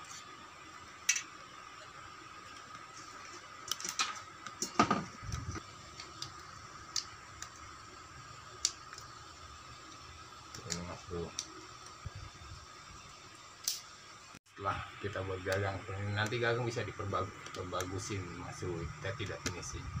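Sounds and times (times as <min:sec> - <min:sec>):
faint high hum: 0:05.0 - 0:20.0.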